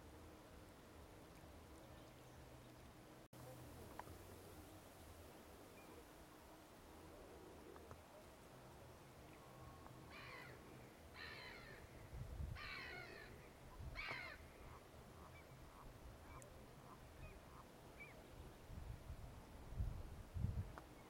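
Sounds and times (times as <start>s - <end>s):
crow cawing: 10.1s - 10.6s, 11.2s - 11.9s, 12.6s - 13.3s, 14.0s - 14.4s.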